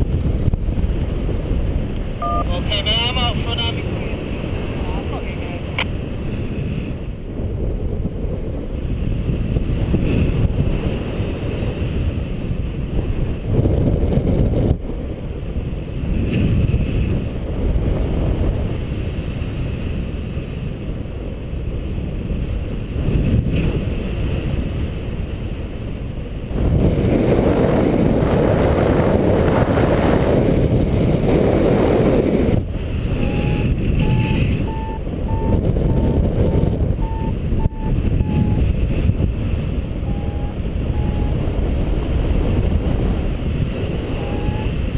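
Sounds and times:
wind on microphone: 0.0s - 44.9s
variometer rising beeps: 2.2s - 3.1s, 28.8s - 29.8s, 33.2s - 38.7s, 40.0s - 41.4s, 44.1s - 44.8s.

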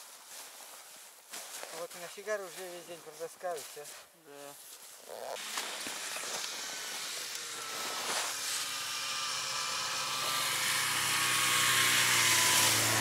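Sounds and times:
snowmobile engine approaching: 5.0s - 13.0s.

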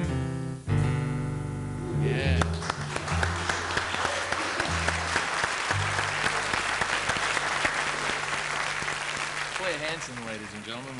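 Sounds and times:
audience applause: 2.3s - 10.9s.

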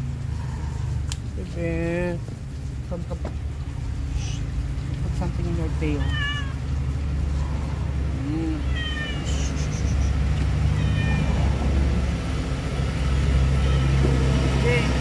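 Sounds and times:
cat meowing: 5.9s - 6.7s, 8.5s - 9.4s, 10.7s - 11.5s, 13.5s - 14.2s.

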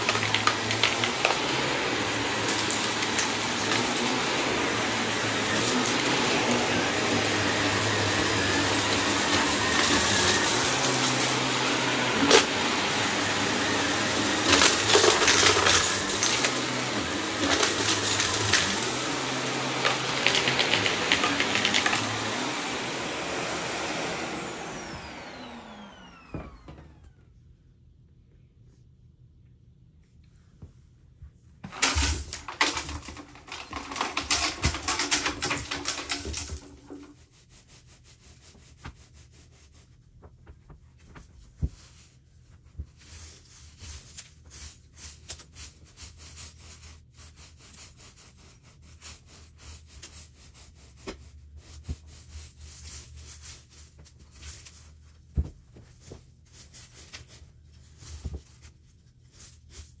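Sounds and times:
carpet rake scraping pile: 0.0s - 25.8s, 31.7s - 37.2s.

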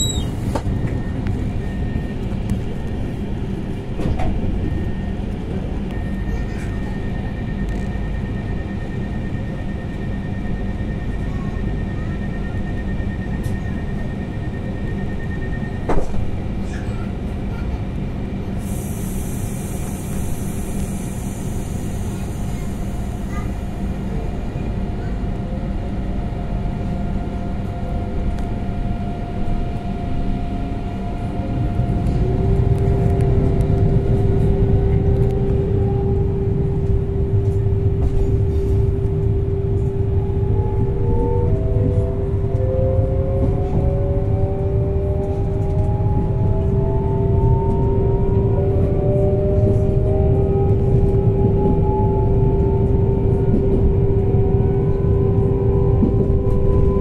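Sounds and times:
train rumble: 0.0s - 57.0s
whining tones: 27.0s - 57.0s.

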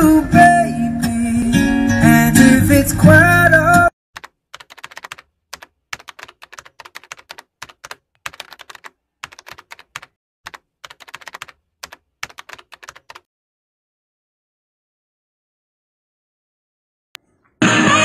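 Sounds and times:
computer keyboard typing: 4.2s - 13.3s.

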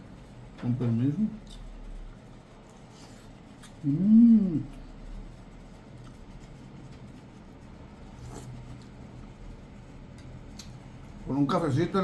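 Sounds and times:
man humming: 3.8s - 4.8s.

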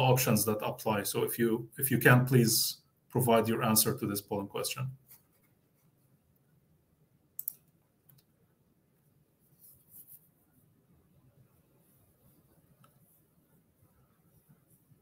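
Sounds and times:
sharp clicks: 7.4s - 8.3s.

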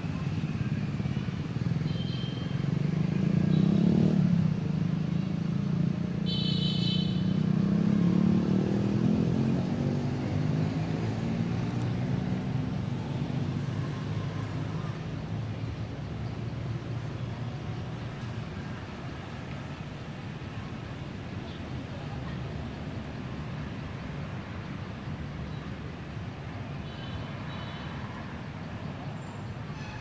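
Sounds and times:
motorbike engine passing: 7.3s - 15.1s.

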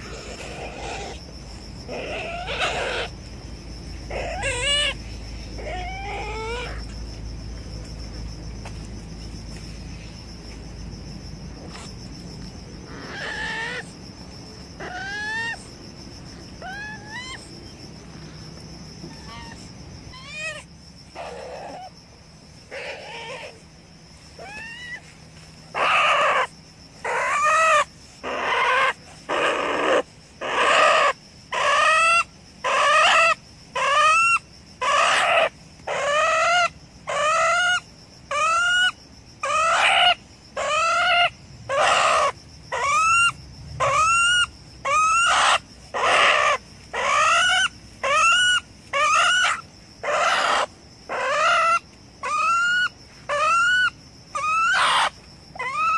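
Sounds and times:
animal crying loudly: 1.9s - 3.1s, 4.1s - 5.0s, 5.6s - 6.8s, 12.9s - 13.9s, 14.8s - 15.6s, 16.6s - 17.5s, 19.1s - 21.9s, 22.7s - 23.6s, 25.7s - 55.9s.

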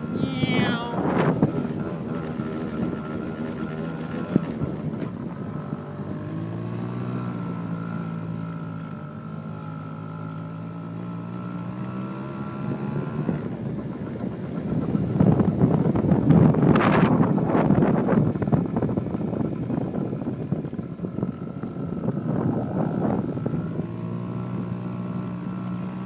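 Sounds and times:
wind buffeting microphone: 0.0s - 6.8s, 12.6s - 24.7s
small quad engine running: 0.0s - 26.0s.

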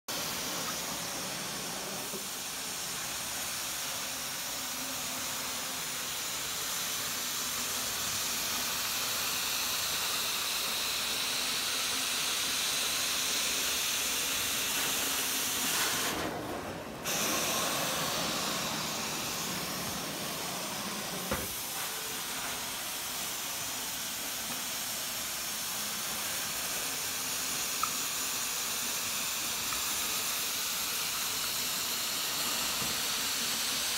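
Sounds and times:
carpet extraction wand hissing: 0.1s - 33.9s.

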